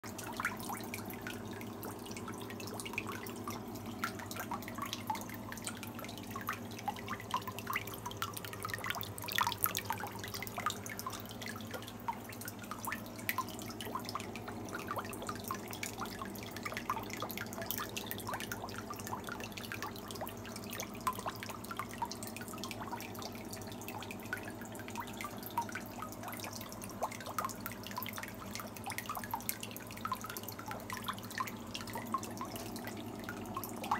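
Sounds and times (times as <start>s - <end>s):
water dripping and trickling: 0.0s - 33.9s
small splashes: 2.2s - 15.2s.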